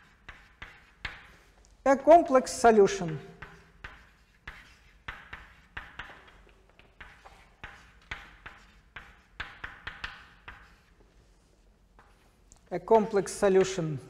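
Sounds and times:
chalk writing on a chalkboard: 0.0 - 1.6, 2.9 - 13.8.

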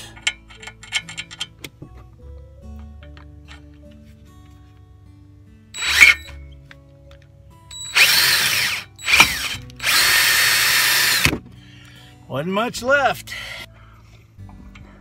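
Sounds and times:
power drill drilling metal: 5.8 - 6.4, 7.7 - 11.4.

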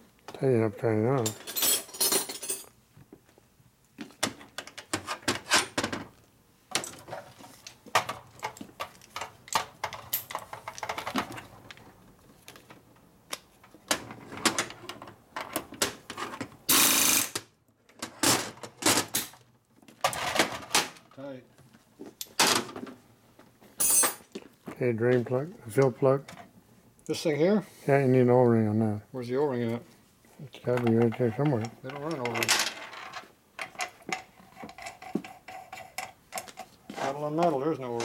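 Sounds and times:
pneumatic tool burst: 16.7 - 17.4
steel tools clinking on metal: 23.8 - 24.2.

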